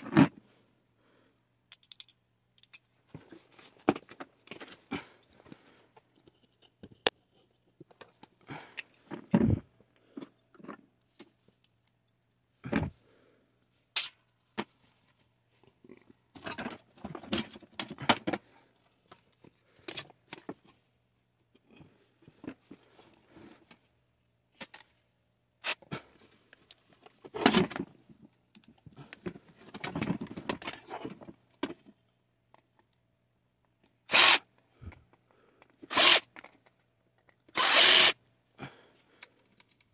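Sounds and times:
cordless drill running: 34.1 - 34.4, 35.9 - 36.2, 37.6 - 38.2.

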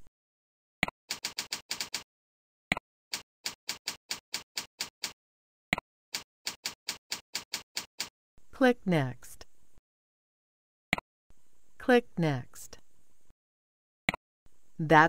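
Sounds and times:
keyboard typing: 1.1 - 2.0, 3.1 - 5.2, 6.1 - 8.1.

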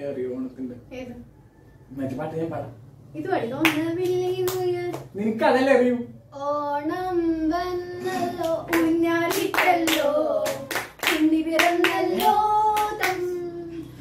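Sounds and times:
hand claps: 3.6 - 5.1, 8.4 - 13.2.

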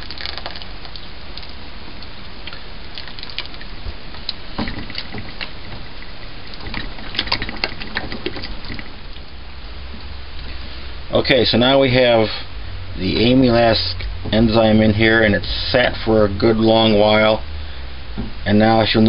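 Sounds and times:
liquid dribbling and splashing: 0.0 - 1.6, 2.4 - 9.4
steady low hum: 0.0 - 19.0.

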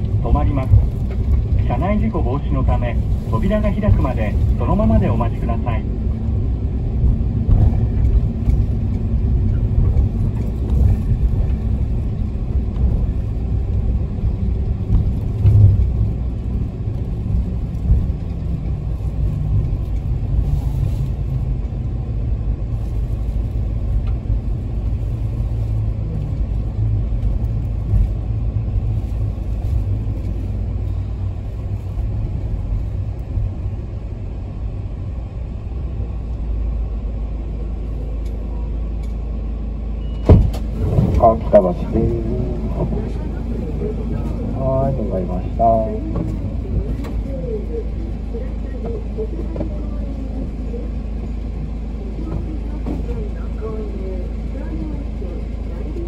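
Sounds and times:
diesel engine rumble: 0.0 - 56.0
road noise: 0.0 - 56.0
low thump: 7.0 - 8.2, 40.2 - 41.2.

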